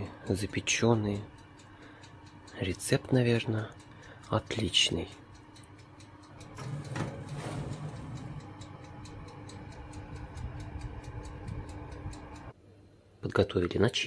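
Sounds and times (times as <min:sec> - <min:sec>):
oven ticking: 0:00.0 - 0:12.6
oven hum: 0:00.0 - 0:13.9
baking tray sliding out: 0:06.5 - 0:08.4.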